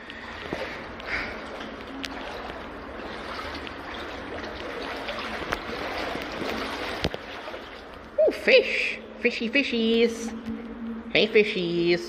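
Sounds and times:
brook water splashing: 0.0s - 8.2s.

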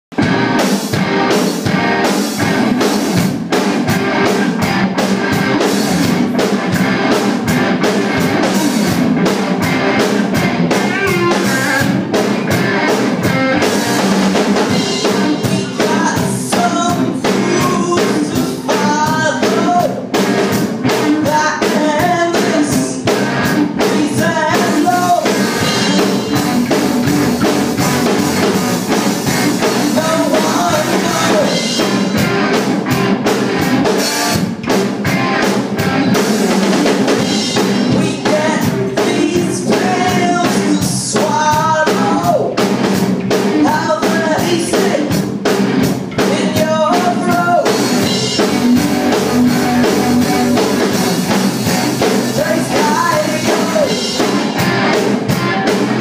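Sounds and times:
live rock band playing: 0.1s - 56.0s
person singing: 10.7s - 12.0s, 14.6s - 20.1s, 20.8s - 26.8s, 29.4s - 32.2s, 37.2s - 42.6s, 43.4s - 45.2s, 46.2s - 51.0s, 52.0s - 54.6s.

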